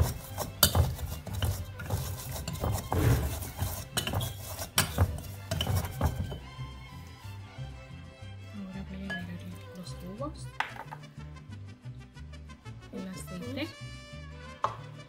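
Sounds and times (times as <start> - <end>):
metal masher clinking on glass bowl: 0.0 - 6.3, 9.1 - 9.6.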